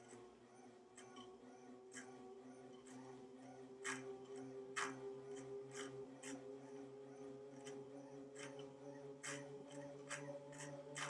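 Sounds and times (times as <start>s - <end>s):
exercise bike hum: 0.0s - 11.0s
sharp ticks: 3.8s - 6.4s.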